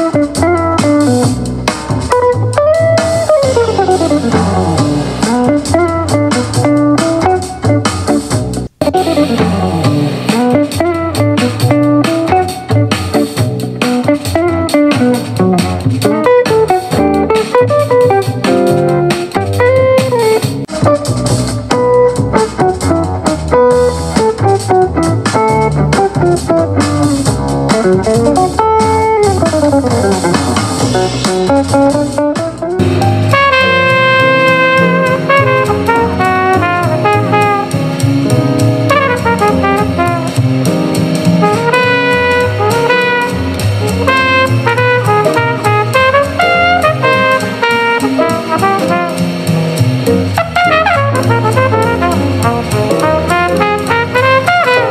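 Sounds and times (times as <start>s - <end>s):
jazz from a speaker: 0.0s - 54.9s.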